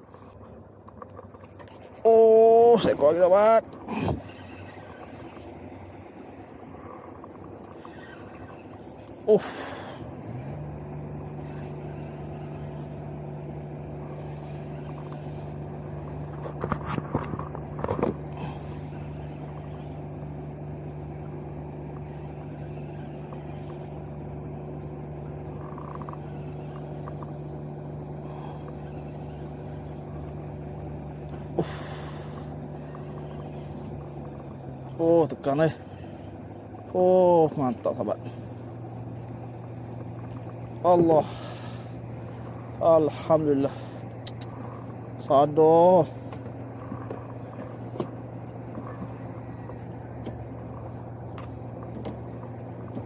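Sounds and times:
engine running steadily: 0.0 - 53.0
fishing tackle clicking: 44.1 - 45.0.

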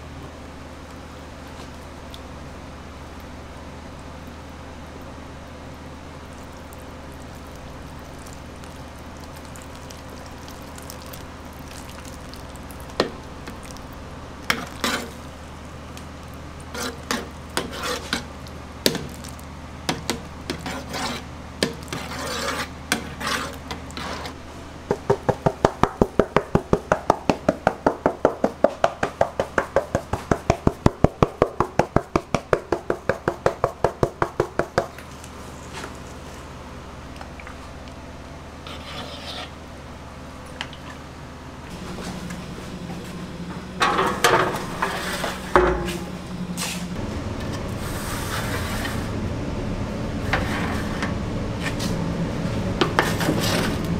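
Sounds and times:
metal ladle scraping pan: 14.5 - 15.2, 16.7 - 18.3, 21.9 - 24.4, 43.8 - 46.1
low hum: 41.6 - 53.9.

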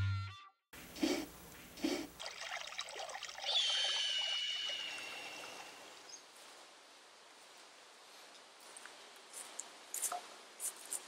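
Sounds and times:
faint forest ambience: 0.8 - 11.0.

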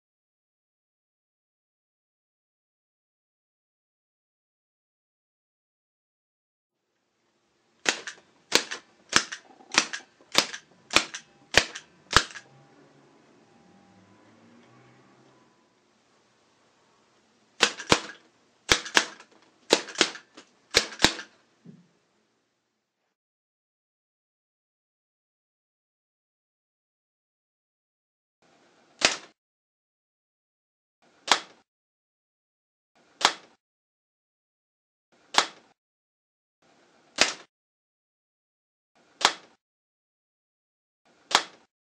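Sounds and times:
rubber band gun snapping: 7.8 - 12.4, 17.6 - 21.4, 29.0 - 29.4, 31.2 - 31.6, 33.2 - 33.6, 35.3 - 35.8, 37.2 - 37.5, 39.2 - 39.6, 41.3 - 41.7
sharp wooden clacks: 7.8 - 12.4, 17.6 - 21.4.

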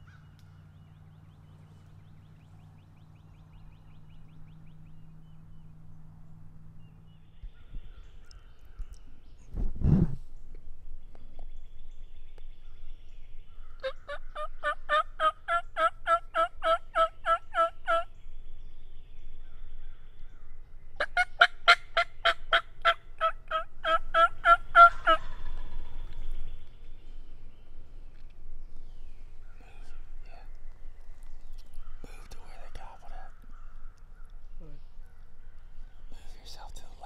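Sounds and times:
turkey yelping: 13.8 - 18.1, 21.0 - 26.1.

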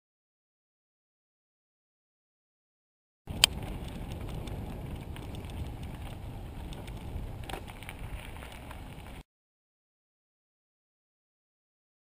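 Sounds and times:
bike clicking and rattling: 3.3 - 9.2
tyres rumbling on dirt: 3.3 - 9.2
wind on microphone: 3.3 - 9.2.

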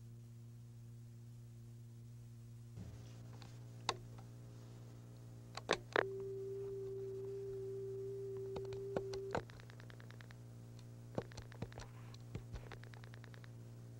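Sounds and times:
low electrical hum: 0.0 - 13.9
dial tone: 6.0 - 9.6.

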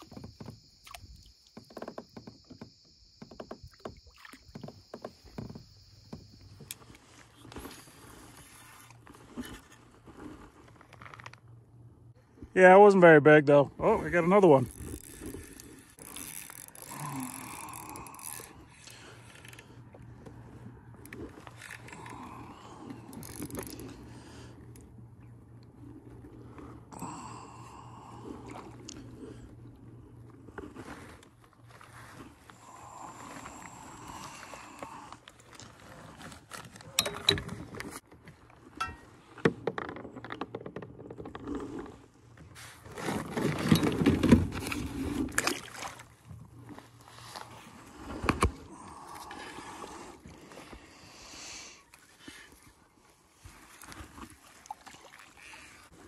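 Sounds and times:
water splashing: 0.0 - 2.6, 3.4 - 5.5, 45.0 - 46.3, 53.7 - 56.0
clicks and knocks on a kayak: 0.0 - 7.8, 35.3 - 45.7
fishing reel clicking and scraping: 14.6 - 19.8, 23.1 - 24.1.

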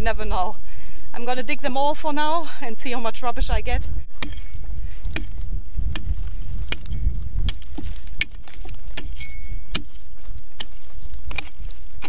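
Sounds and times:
wind rumble on microphone: 2.8 - 12.0
pick striking stony ground: 4.1 - 12.0.

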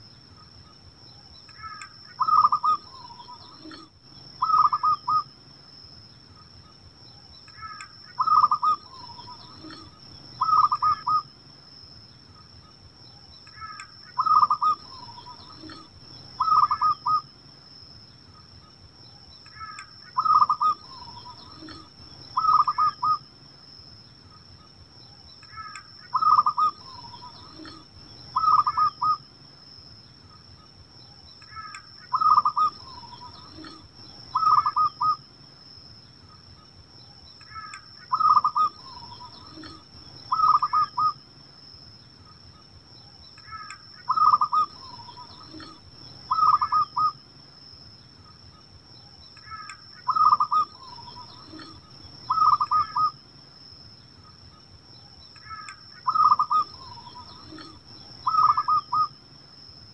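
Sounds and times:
faint high-pitched whine: 0.0 - 59.9
dove cooing: 1.6 - 5.3, 7.6 - 11.2, 13.6 - 17.2, 19.6 - 23.2, 25.6 - 29.2, 31.6 - 35.2, 37.5 - 41.2, 43.5 - 47.2, 49.5 - 53.1, 55.5 - 59.1.

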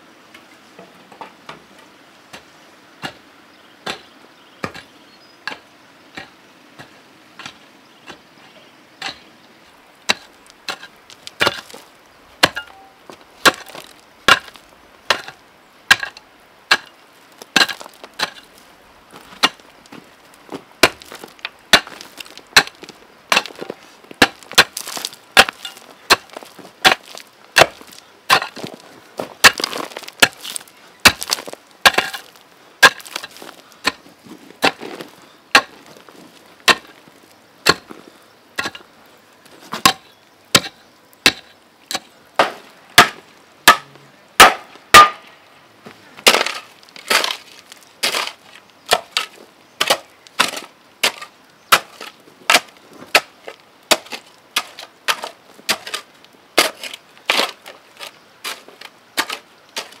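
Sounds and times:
hoe chopping into stony soil: 2.4 - 3.2, 3.8 - 4.9, 10.1 - 11.8, 12.4 - 18.5, 19.1 - 37.0, 37.6 - 38.0, 38.6 - 38.9, 39.7 - 45.2, 46.2 - 60.0
clods and stones rattling: 16.0 - 38.9.

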